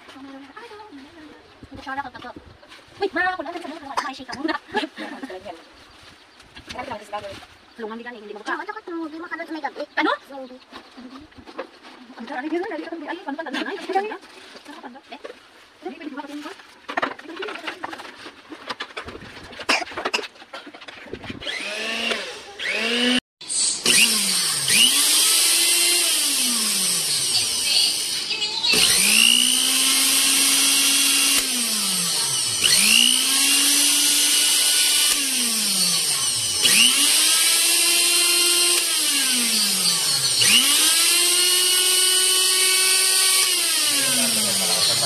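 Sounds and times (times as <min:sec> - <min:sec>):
blender motor whining: 0:21.3 - 0:45.0.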